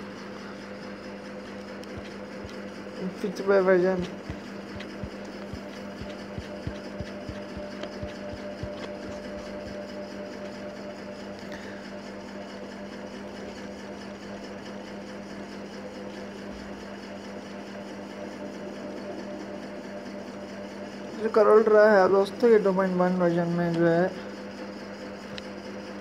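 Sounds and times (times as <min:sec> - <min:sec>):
low hum with hiss: 0:00.0 - 0:12.6.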